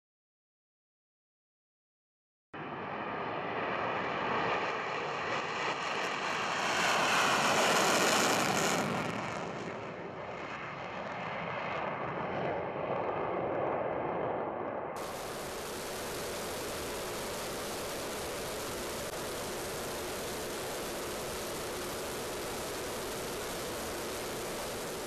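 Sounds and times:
fighter jet taking off: 2.6s - 12.1s, 14.7s - 25.0s.

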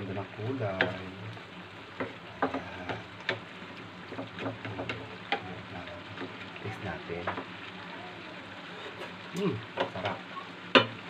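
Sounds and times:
food simmering in a frying pan: 0.0s - 11.0s
wooden spatula knocking on pan: 0.7s - 1.1s, 1.9s - 3.5s, 4.1s - 5.5s, 7.2s - 7.6s, 9.7s - 11.0s.

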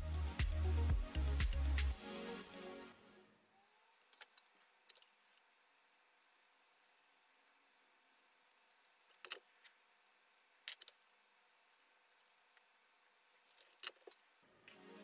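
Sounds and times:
electronic background music: 0.0s - 3.5s, 14.5s - 15.0s.

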